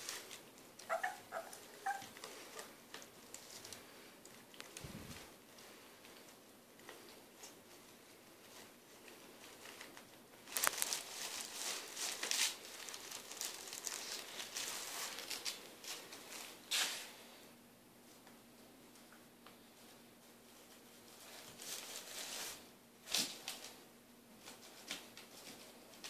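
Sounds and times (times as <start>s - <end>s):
plastic bin liner crinkling: 6.3s - 17.0s.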